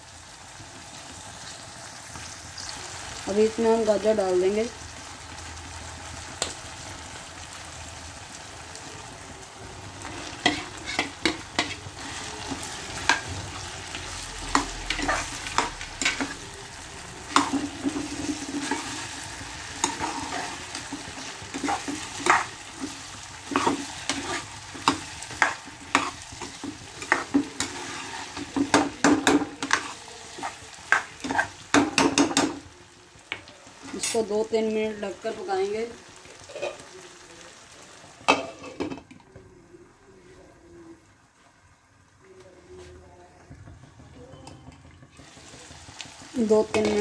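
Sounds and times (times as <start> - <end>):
vegetables sizzling in oil: 0.0 - 40.2, 43.4 - 47.0
ladle scraping a pan: 10.0 - 13.6, 17.3 - 29.0, 36.5 - 36.8.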